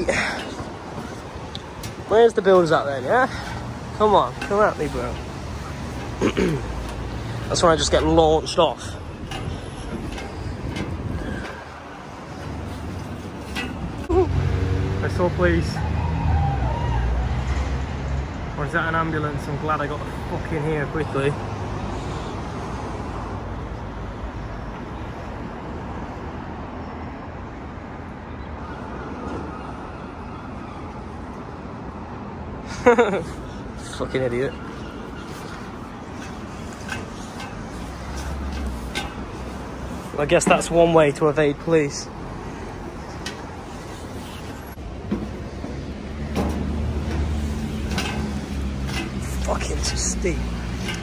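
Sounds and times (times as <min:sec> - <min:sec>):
vehicle engine humming: 0:00.0 - 0:16.0, 0:32.9 - 0:51.0
cars passing on street: 0:00.0 - 0:51.0
footsteps on metal stairs: 0:00.1 - 0:14.1, 0:34.6 - 0:40.8, 0:44.4 - 0:51.0.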